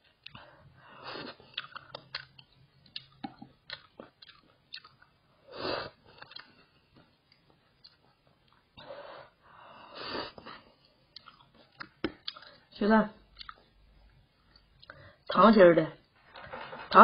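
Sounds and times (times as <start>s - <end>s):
person chewing noodles: 0.1s - 8.8s, 9.9s - 12.6s, 13.3s - 15.2s.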